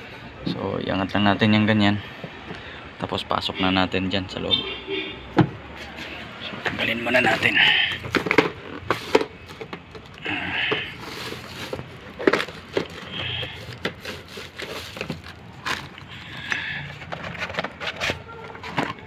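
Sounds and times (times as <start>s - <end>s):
cardboard box being handled: 6.7s - 16.1s.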